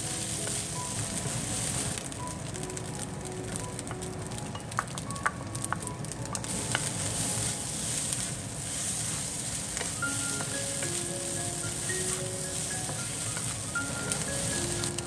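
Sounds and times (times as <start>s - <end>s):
rice sizzling in a wok: 0.0s - 15.0s
spatula stirring and tossing: 6.9s - 15.0s
spatula tapping pan: 9.8s - 15.0s.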